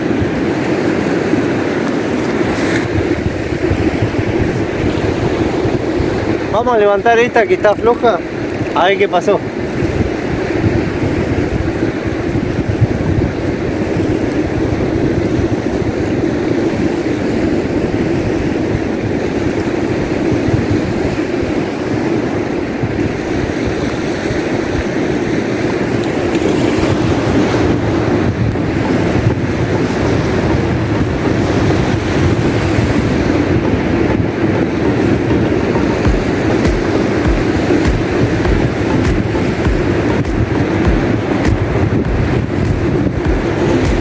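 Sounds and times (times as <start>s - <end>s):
surf breaking on beach: 0.0s - 44.0s
wind rumbling on microphone: 0.0s - 44.0s.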